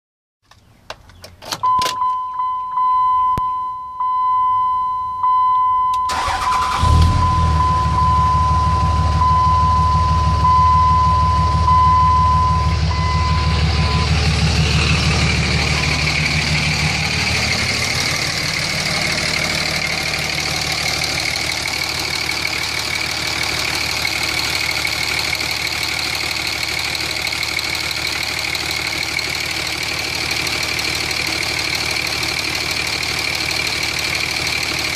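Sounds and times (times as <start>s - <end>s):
diesel engine cranking and idling: 4.0s - 34.9s
steady electronic tone: 7.2s - 21.6s.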